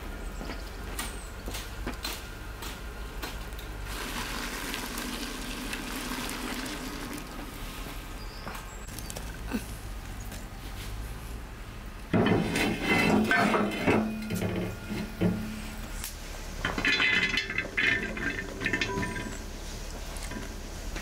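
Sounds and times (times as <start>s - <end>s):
pot and lid clattering on stove: 12.1s - 15.5s, 16.6s - 19.5s.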